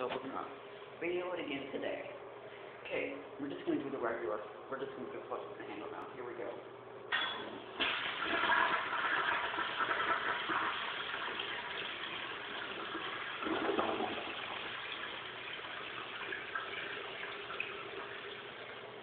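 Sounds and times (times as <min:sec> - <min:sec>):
toilet flushing: 0:07.2 - 0:19.0
water running: 0:07.2 - 0:19.0.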